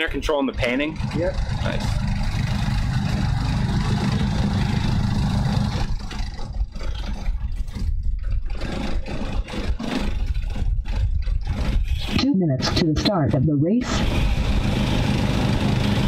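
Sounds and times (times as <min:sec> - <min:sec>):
wind buffeting microphone: 0:10.0 - 0:12.2.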